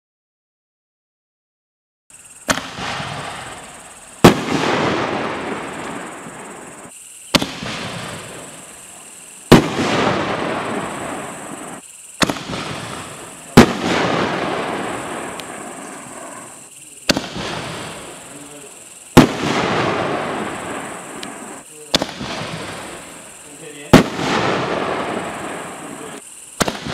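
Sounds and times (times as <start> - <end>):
firework launch thump: 2.4 - 8.6, 9.5 - 18.2, 19.1 - 23.1, 23.8 - 26.9
firework shell bursting bang: 2.4 - 8.6, 9.5 - 18.2, 19.1 - 23.1, 26.6 - 26.9.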